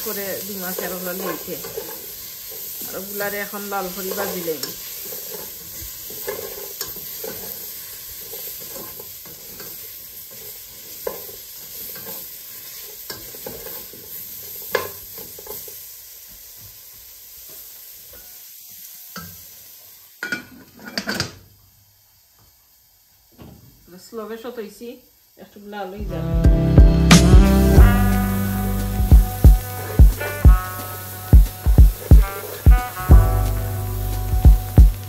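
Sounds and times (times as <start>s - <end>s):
onion and garlic sizzling: 0.0s - 35.0s
spoon scraping a pan: 0.7s - 3.1s, 3.8s - 15.8s, 29.6s - 33.1s.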